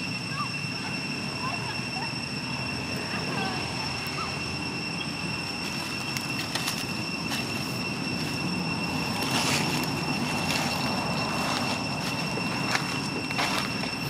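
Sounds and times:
high-pitched whine: 0:00.0 - 0:14.0
dry leaves rustling underfoot: 0:05.2 - 0:14.0.

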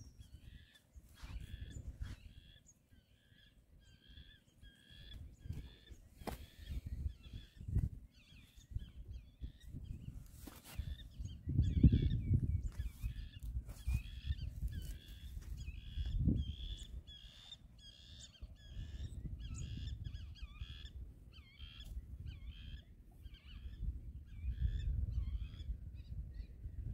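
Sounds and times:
birds calling in squeaky notes: 0:00.0 - 0:26.6.

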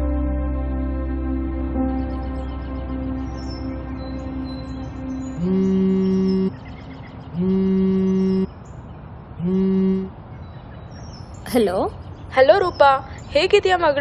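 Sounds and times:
soft background music: 0:00.0 - 0:07.2
mobile phone buzzing: 0:05.4 - 0:06.5, 0:07.4 - 0:08.5, 0:09.4 - 0:10.1.

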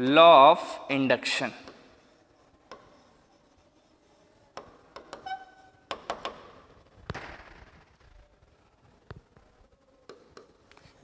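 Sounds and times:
pen scraping on board: 0:01.6 - 0:06.4
pen tapping on board: 0:02.7 - 0:03.0, 0:04.5 - 0:05.3, 0:05.9 - 0:06.5, 0:10.1 - 0:10.6
pen squeak: 0:04.6 - 0:05.9.

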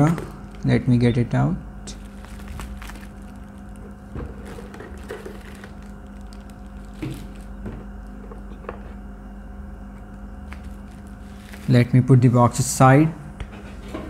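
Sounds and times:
steady low hum: 0:00.0 - 0:14.0
bubble wrap crinkling: 0:01.8 - 0:08.2, 0:10.0 - 0:12.1.

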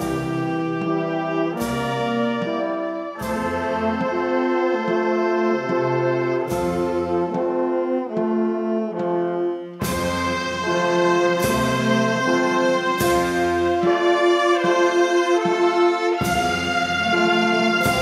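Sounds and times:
brass band playing a slow march: 0:00.0 - 0:18.0
percussion strikes: 0:00.0 - 0:18.0.

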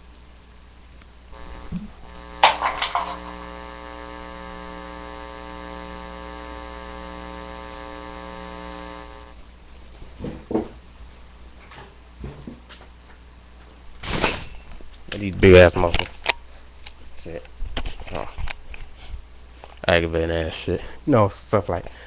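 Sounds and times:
steady buzz: 0:01.3 - 0:09.5.

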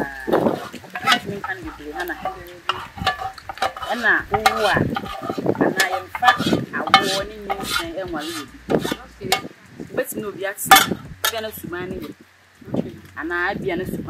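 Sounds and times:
wooden stick knocking and scraping pot: 0:00.0 - 0:09.5, 0:10.7 - 0:11.5.

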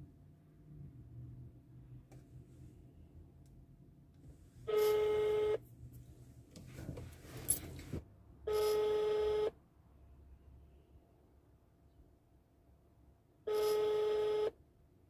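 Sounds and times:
phone ringback tone: 0:08.5 - 0:09.5, 0:13.5 - 0:14.5.

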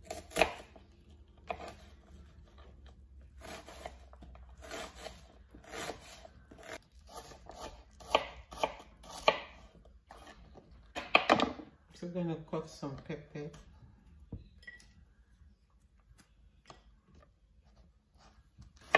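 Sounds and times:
knife cutting onion: 0:00.0 - 0:02.7, 0:03.3 - 0:11.4, 0:18.2 - 0:18.9.

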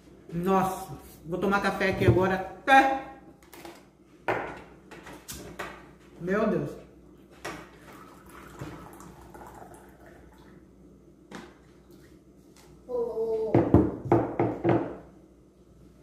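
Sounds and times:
thermos and cups knocking on table: 0:04.2 - 0:04.7, 0:13.5 - 0:15.1
coffee trickling into cup: 0:07.6 - 0:10.6.

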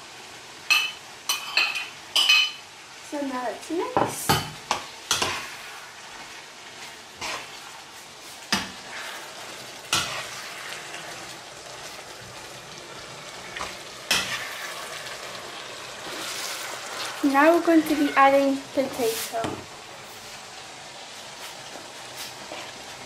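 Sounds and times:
frying sizzle: 0:00.0 - 0:23.0
metal spoon scraping a pan: 0:05.1 - 0:12.1, 0:13.4 - 0:15.2, 0:16.0 - 0:19.4.

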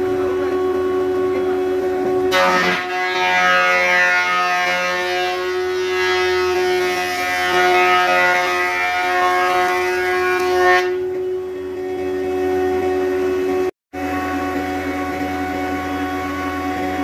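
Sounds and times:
thickness planer whining: 0:00.0 - 0:17.0
planer cutting wood board: 0:02.3 - 0:11.0.

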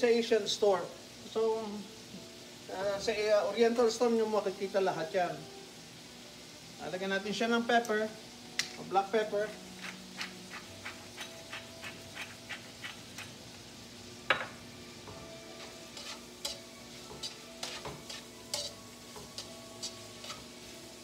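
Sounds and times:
food sizzling in pan: 0:00.0 - 0:21.0
metal tongs clicking on skillet: 0:07.8 - 0:08.0, 0:16.0 - 0:20.5.

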